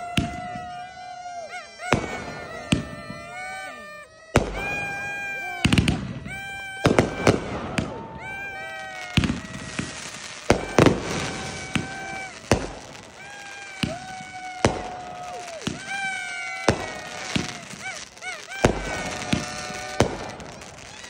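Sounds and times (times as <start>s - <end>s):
firework shells bursting: 1.8s - 21.0s.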